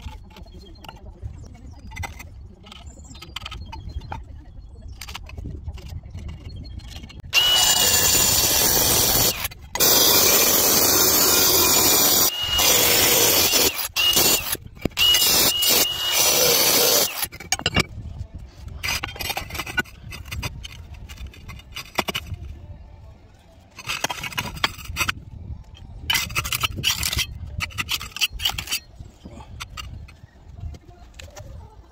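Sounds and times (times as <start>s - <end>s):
clay tiles scraping and knocking: 0.0s - 22.6s, 23.7s - 31.7s
angle grinder cutting tile: 7.3s - 17.3s.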